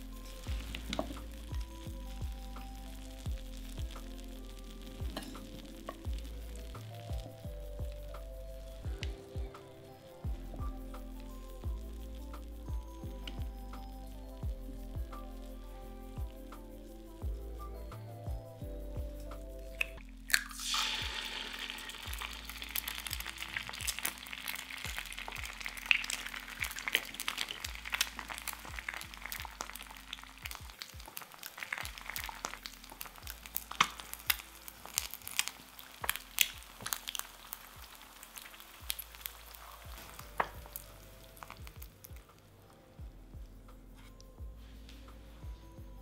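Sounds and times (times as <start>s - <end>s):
egg sizzling in oil: 0.0s - 10.2s, 19.8s - 42.2s
egg cracking: 0.0s - 10.6s, 19.7s - 42.7s
oil crackling and popping: 0.0s - 15.5s, 19.3s - 42.4s.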